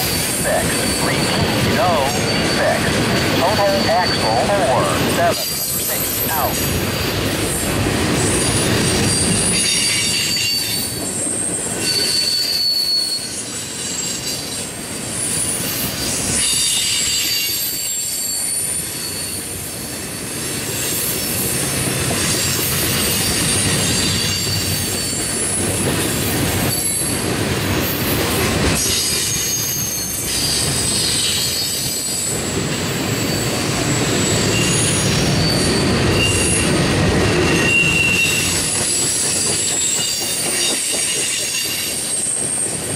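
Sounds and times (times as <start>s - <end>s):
train wheels rumbling on rails: 0.0s - 42.9s
wheel squeals: 11.6s - 14.4s.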